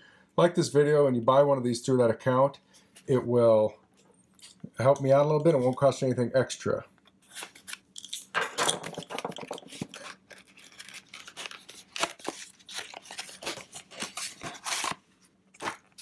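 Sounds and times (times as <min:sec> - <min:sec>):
packaging rustling: 0:07.3 - 0:16.0
cardboard tearing: 0:09.7 - 0:16.0.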